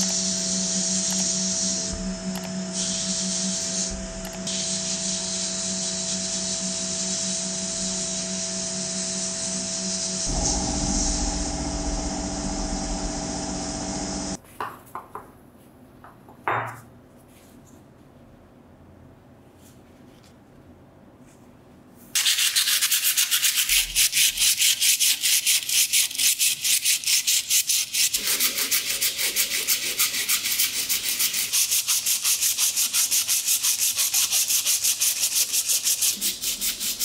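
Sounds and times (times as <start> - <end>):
steady hum: 0.0 - 14.4, 28.2 - 31.6
sandblasting gun hissing: 2.7 - 14.4, 28.2 - 33.1.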